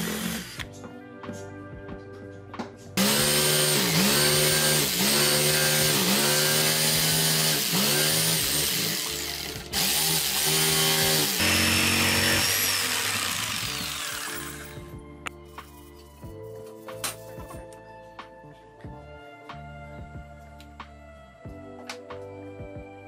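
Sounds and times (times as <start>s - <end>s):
electric jigsaw cutting wood: 0.0s - 0.7s, 3.0s - 14.9s.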